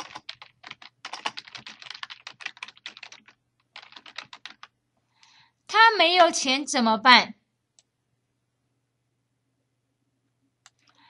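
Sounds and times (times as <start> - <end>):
typing on computer keyboard: 0.0 - 4.8.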